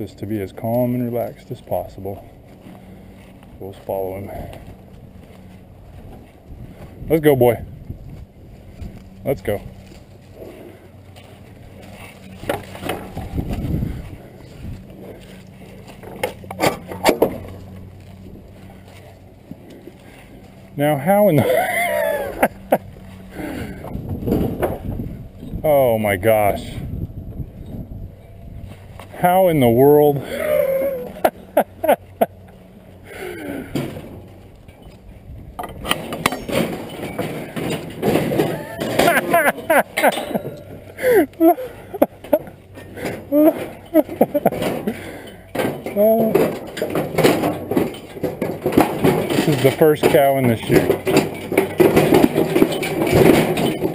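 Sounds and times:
low rumbling shuffle: 0.0 - 53.9
metal gate clanking: 9.2 - 19.0, 33.4 - 53.9.

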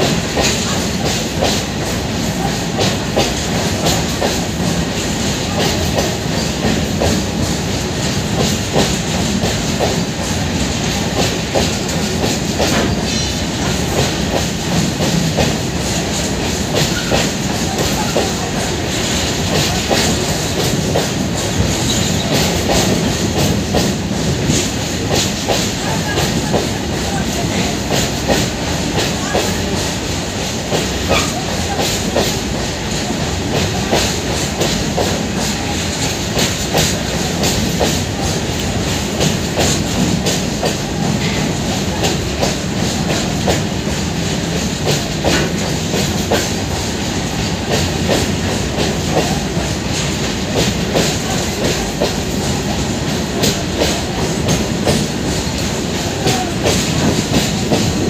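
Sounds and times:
freight train rumbling: 0.0 - 58.0
train wheels clicking over rail joints: 0.0 - 58.0.

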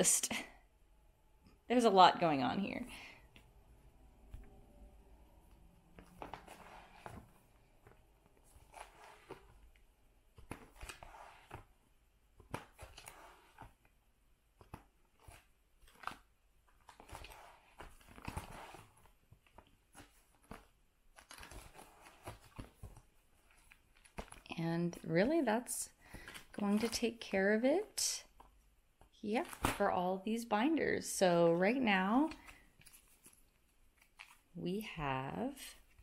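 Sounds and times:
plastic pages rustling: 5.5 - 13.9, 14.6 - 28.6, 31.5 - 34.9.

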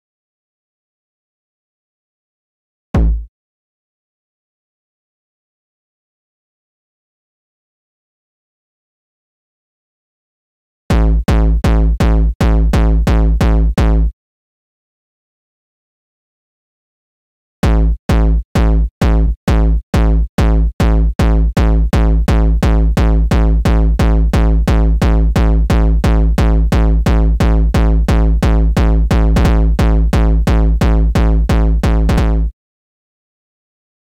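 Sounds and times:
distorted kick drum loop: 3.0 - 3.3, 10.9 - 14.1, 17.6 - 32.5.

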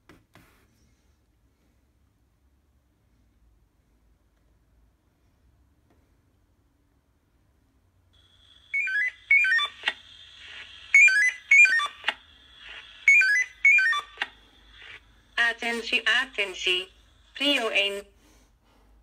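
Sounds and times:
steady high alarm tone: 8.2 - 17.5.

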